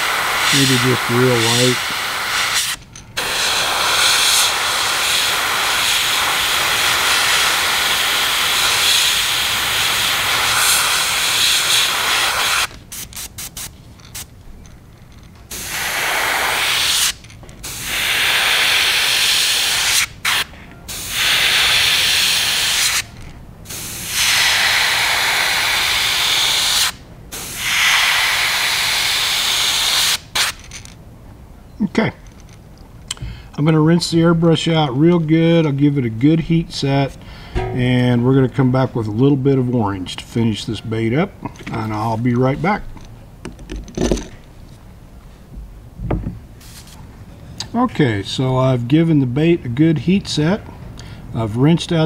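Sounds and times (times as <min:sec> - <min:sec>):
airbrush spraying hiss: 0:00.0 - 0:14.3, 0:15.5 - 0:23.1, 0:23.7 - 0:30.6.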